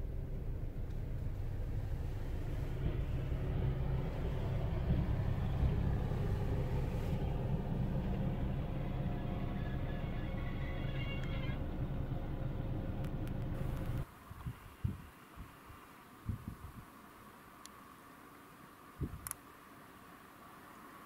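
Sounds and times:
diesel locomotive rumbling past: 0.0 - 14.0.

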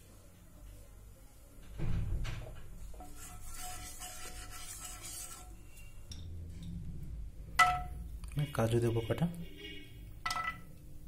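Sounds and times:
thump: 1.8 - 2.5
wooden spatula scraping frying pan: 2.9 - 5.9.

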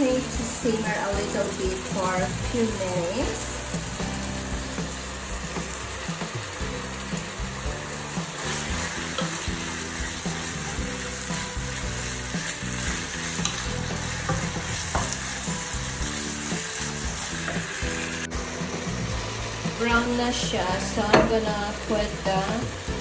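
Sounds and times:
meat and onions sizzling in pan: 0.0 - 23.0
wooden spoon scraping pan: 8.2 - 20.1.

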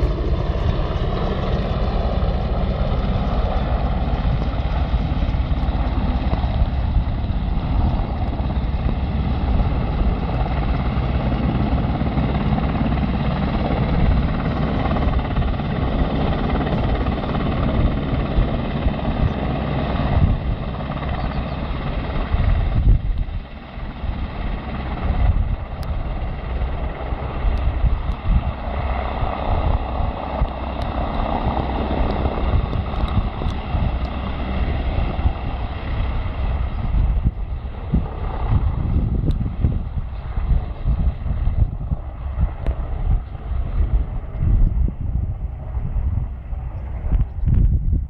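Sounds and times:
helicopter rotor noise: 0.0 - 48.0
wind buffeting microphone: 0.0 - 48.0.

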